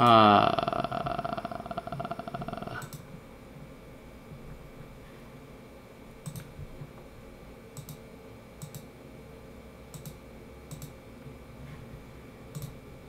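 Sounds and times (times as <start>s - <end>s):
faint low hum: 0.0s - 13.0s
computer mouse button clicking: 6.2s - 6.5s, 7.8s - 8.0s, 8.6s - 8.9s, 9.9s - 11.0s, 12.5s - 12.8s.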